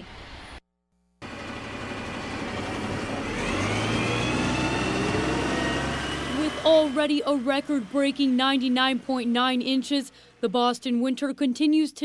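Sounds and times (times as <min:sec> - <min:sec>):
motor vehicle engine running: 0:01.2 - 0:10.2.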